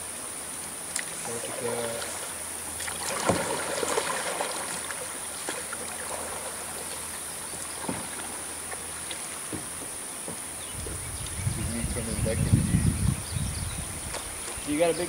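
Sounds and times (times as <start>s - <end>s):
outdoor ambience: 0.0s - 15.0s
paddles splashing in water: 0.8s - 11.4s, 13.7s - 15.0s.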